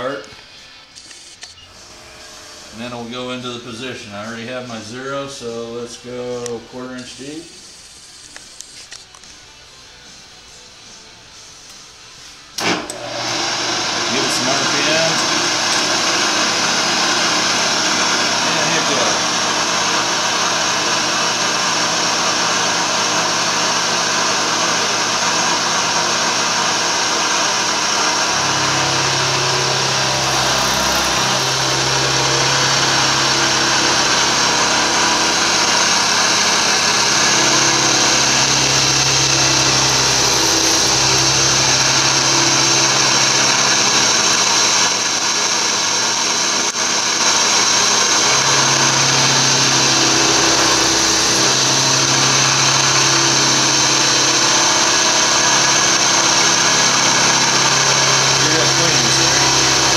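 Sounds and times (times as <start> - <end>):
milling machine cutting metal: 0.9 - 8.6, 12.6 - 59.9
low hum: 27.9 - 44.4.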